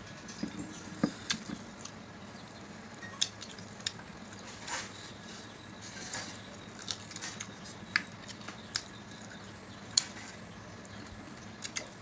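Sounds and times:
eating smacks and clicks: 11.4 - 12.0.

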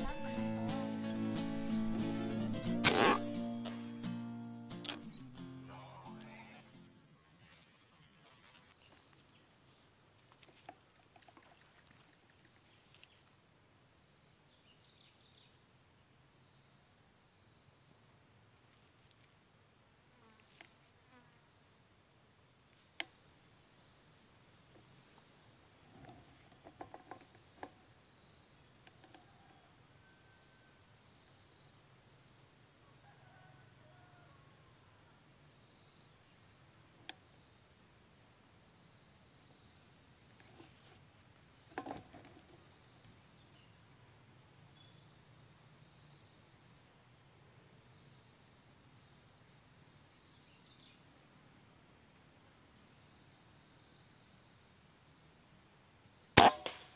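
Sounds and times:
high-pitched insect chorus: 0.0 - 21.2, 21.9 - 56.7
short sharp clicks: 2.8 - 3.9, 4.8 - 5.2.

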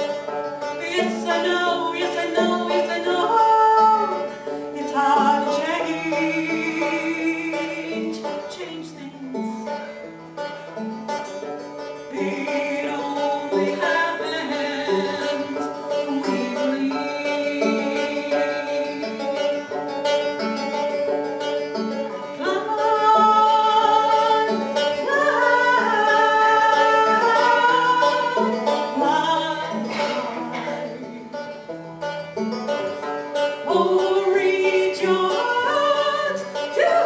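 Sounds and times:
banjo picking: 0.0 - 37.0
woman singing: 0.8 - 9.8, 12.1 - 19.3, 22.4 - 31.5, 33.6 - 37.0.

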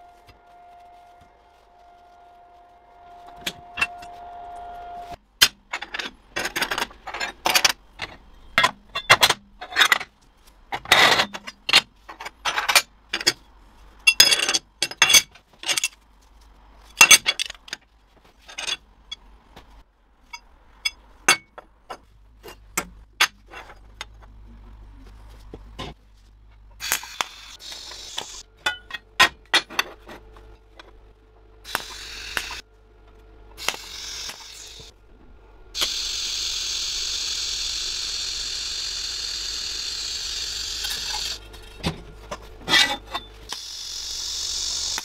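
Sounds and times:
steady hum: 23.6 - 45.0.

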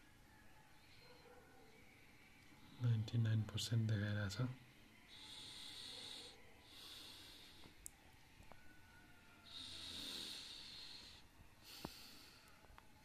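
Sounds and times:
faint breathing: 5.0 - 7.8, 9.4 - 12.8.

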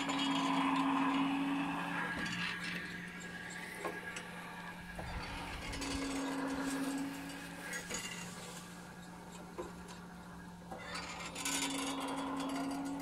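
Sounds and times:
iron pump linkage squeaking: 0.0 - 13.0
steady low hum: 0.0 - 13.0.

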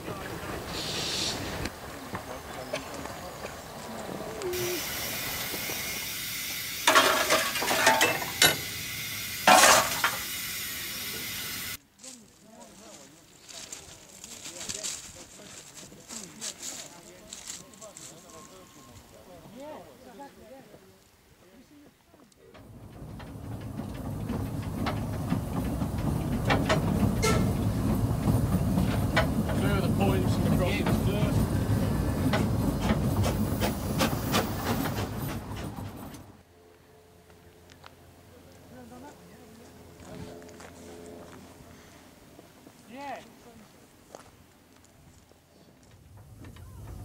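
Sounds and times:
steam hissing: 0.0 - 1.9, 4.3 - 11.8, 24.4 - 36.1
fire shovel clattering and scraping: 6.8 - 8.8, 9.4 - 10.3, 22.6 - 36.2
metallic knocks from wheels: 22.6 - 36.3.

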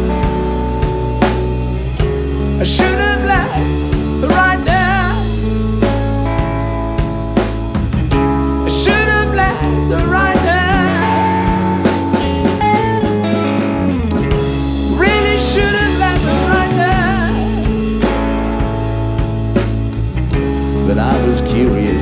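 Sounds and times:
drum kit beat: 0.0 - 22.0
electric guitars: 0.0 - 22.0
keyboard chords: 0.0 - 22.0
man singing: 2.4 - 5.6, 8.6 - 12.4, 14.8 - 18.2, 20.7 - 22.0.

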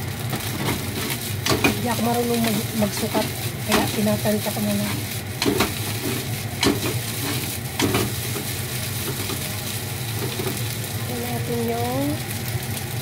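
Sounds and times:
rice sizzling in a frying pan: 0.0 - 13.0
wooden spatula scraping pan: 0.4 - 9.4.

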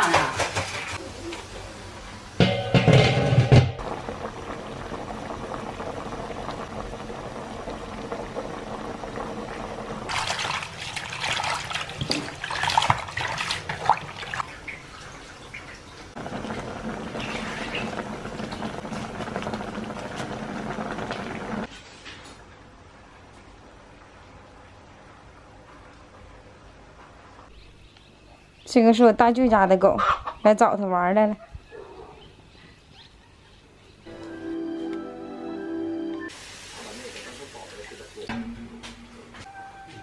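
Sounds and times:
fish simmering in a wok: 0.4 - 21.7, 36.3 - 38.2
hands splashing greens in water: 10.1 - 14.4.

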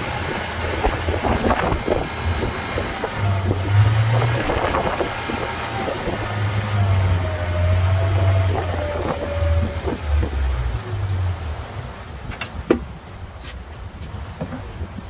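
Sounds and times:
boat motor humming: 0.0 - 15.0
sharp knocks: 12.3 - 12.9.

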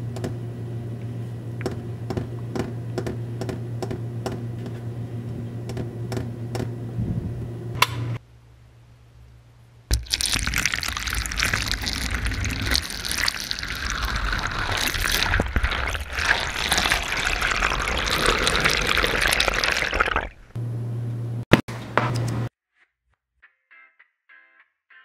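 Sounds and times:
tap water running into sink: 9.9 - 20.3.

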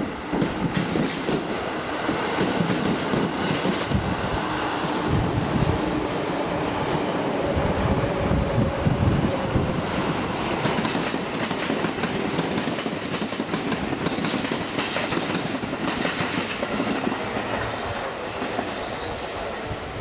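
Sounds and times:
train rolling rumble: 0.0 - 20.0
train wheels clattering: 0.3 - 4.0, 10.5 - 17.7.

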